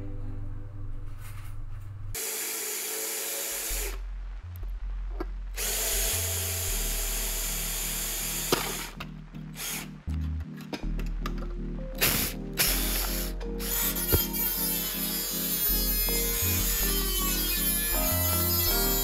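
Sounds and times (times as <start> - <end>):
power drill boring through metal: 2.2 - 4.0, 5.6 - 9.0, 9.6 - 9.9, 12.0 - 19.0.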